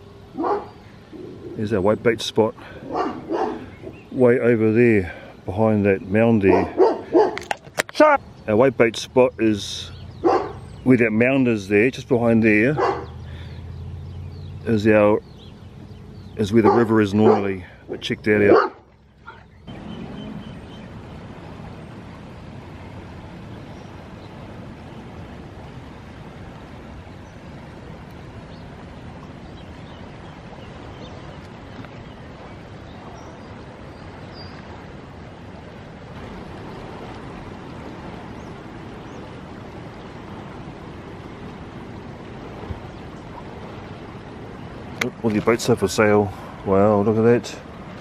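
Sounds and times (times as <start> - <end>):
river rushing: 0.0 - 48.0.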